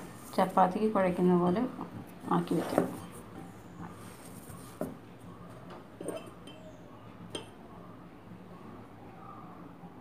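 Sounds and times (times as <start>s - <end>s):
glass bowl clinking: 6.0s - 7.6s.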